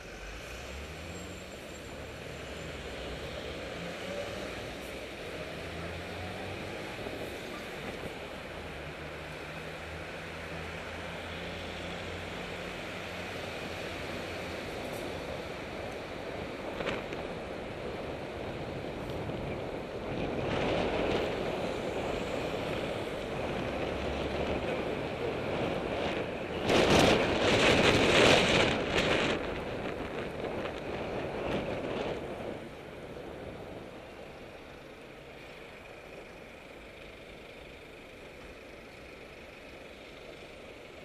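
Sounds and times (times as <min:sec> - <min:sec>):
city traffic: 0:00.0 - 0:41.0
wind on microphone: 0:16.5 - 0:32.7.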